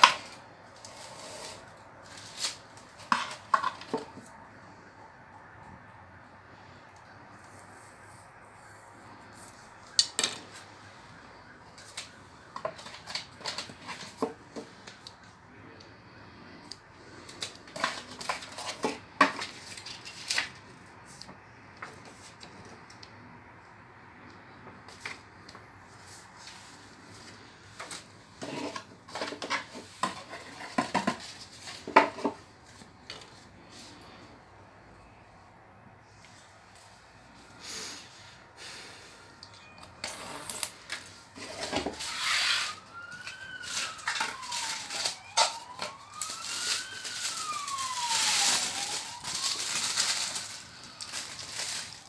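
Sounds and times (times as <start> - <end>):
cardboard and paper rustling: 0.0 - 4.9, 7.4 - 15.8, 16.4 - 22.9, 24.7 - 34.2, 39.9 - 52.0.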